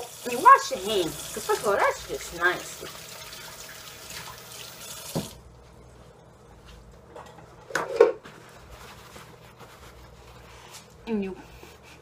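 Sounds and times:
clatter of kitchen things: 7.1 - 9.2.

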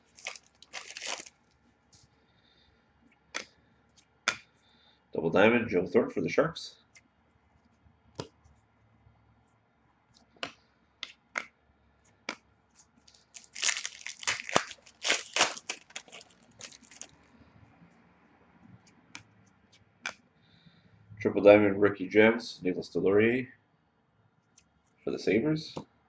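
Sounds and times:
foil wrapper tearing and crinkling: 0.0 - 1.3, 13.1 - 17.1.

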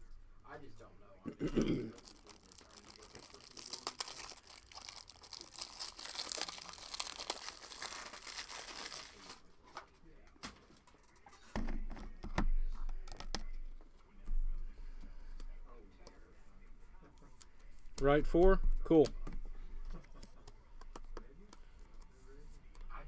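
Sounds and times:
packaging tearing and crinkling: 1.9 - 9.4.

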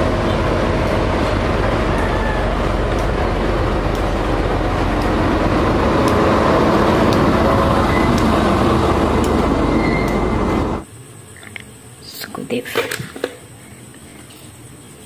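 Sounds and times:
diesel locomotive engine rumble: 0.0 - 10.9.

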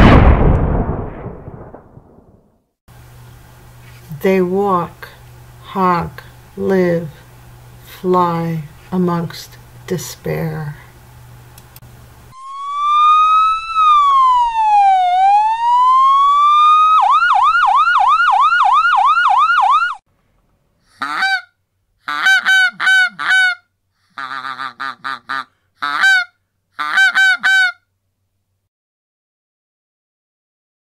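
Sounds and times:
police siren wailing: 12.3 - 20.0
goose honking: 21.0 - 21.5, 22.1 - 23.6, 24.2 - 27.8.

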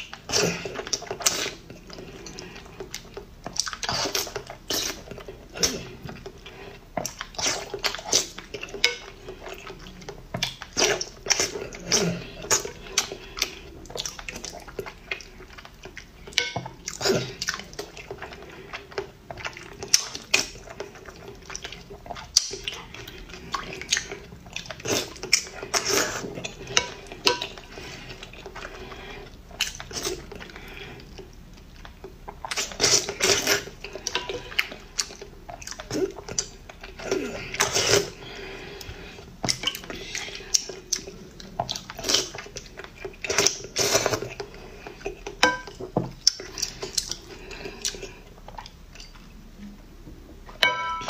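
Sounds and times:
chewing: 0.0 - 49.8
spoon clinking on bowl: 50.6 - 51.0.

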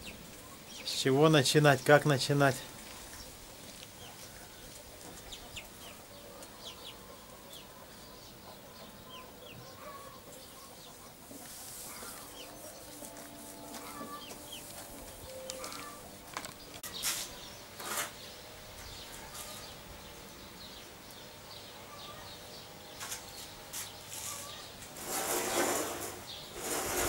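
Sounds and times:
small birds chirping: 0.0 - 27.0
hens clucking: 2.7 - 16.9.

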